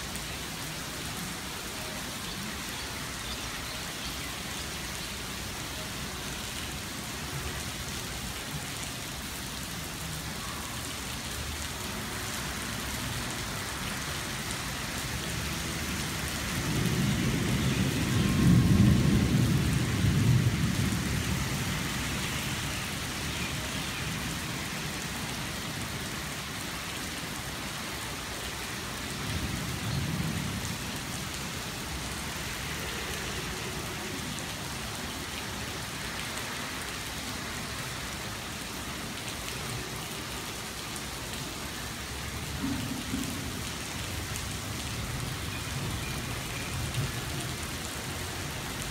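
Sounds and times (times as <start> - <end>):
heavy rain falling: 0.0 - 48.9
low rumble of thunder: 16.6 - 21.8.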